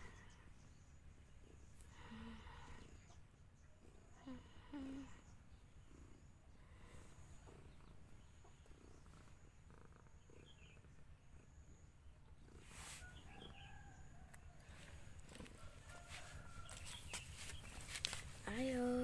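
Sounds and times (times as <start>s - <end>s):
faint low rumble: 0.0s - 19.0s
soft rustle: 12.5s - 19.0s.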